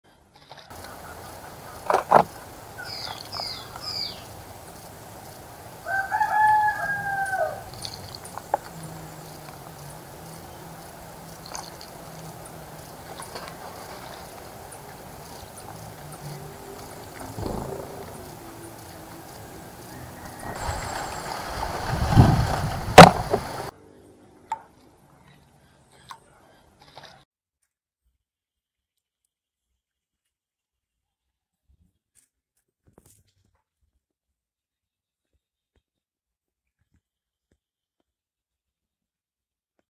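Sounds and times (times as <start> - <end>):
high falling bird chirps: 2.5 - 13.4, 14.0 - 22.8
rooster crowing: 5.8 - 10.4, 15.8 - 21.8
low whoosh: 17.1 - 23.7
sharp knocks: 17.2 - 19.4.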